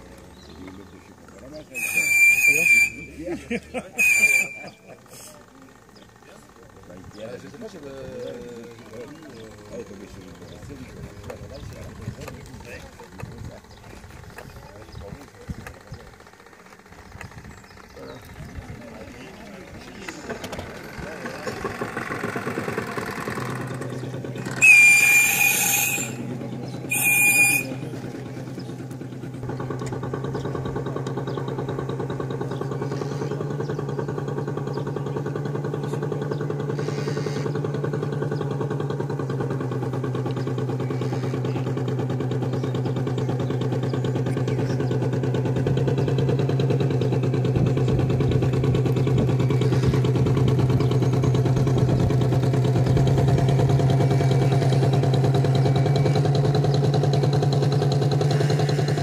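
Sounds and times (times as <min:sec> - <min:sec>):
model boat engine humming: 0:00.0 - 0:59.0
whistle blasts: 0:01.7 - 0:03.2, 0:04.0 - 0:04.9, 0:24.5 - 0:28.0.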